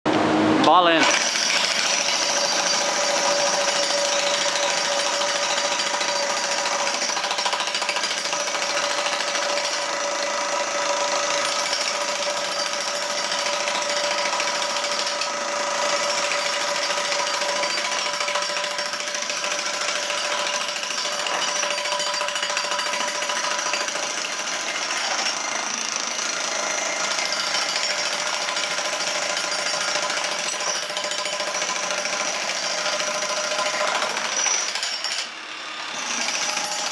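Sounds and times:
demolition hammers pounding concrete: 1.0 - 35.3.

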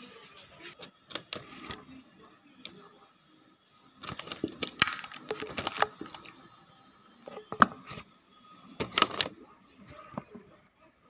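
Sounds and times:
handling clicks and crackles: 4.0 - 6.3.

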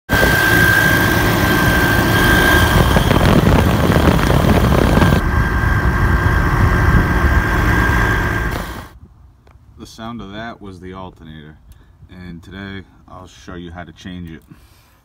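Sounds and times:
diesel engine idling: 0.1 - 8.9
high-pitched alternator whine: 0.1 - 9.0.

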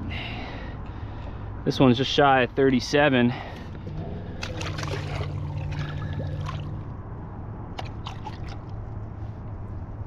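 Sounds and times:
steady low hum: 0.0 - 10.0
water sloshing and dripping: 3.5 - 7.1, 7.7 - 9.2
short sharp splashes: 3.8 - 6.9, 7.8 - 8.8.

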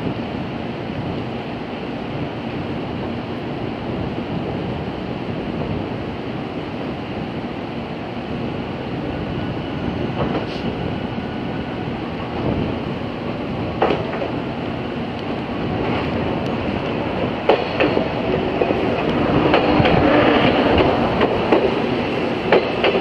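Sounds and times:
train wheels rumbling on track: 0.0 - 23.0
high train squeals: 3.6 - 16.0.

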